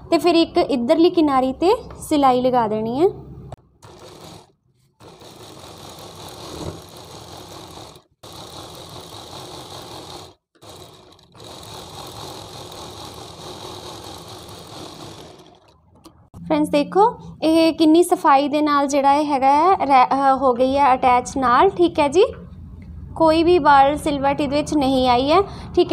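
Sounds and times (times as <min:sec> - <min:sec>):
sewing machine running: 0:03.8 - 0:15.9.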